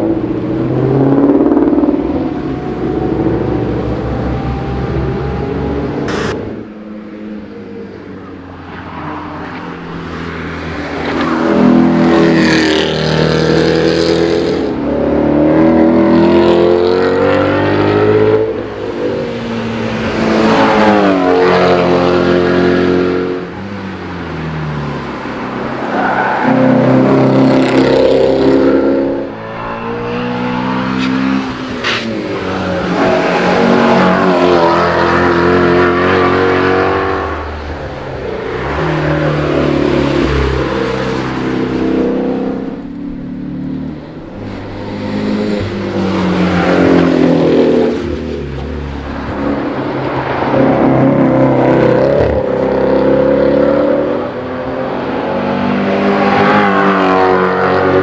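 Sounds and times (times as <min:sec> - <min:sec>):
car engine revving: 0:00.0 - 0:06.8, 0:25.0 - 0:58.0.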